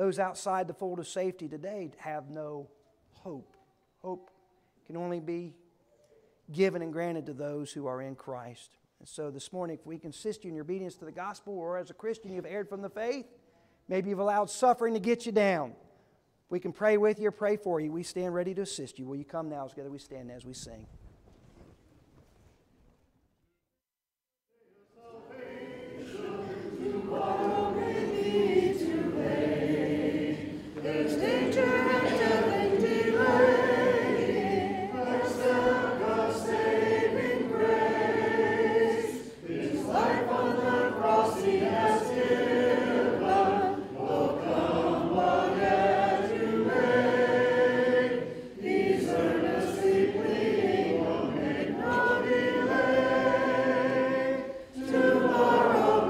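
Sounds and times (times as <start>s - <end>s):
congregation singing a hymn: 24.7s - 56.0s.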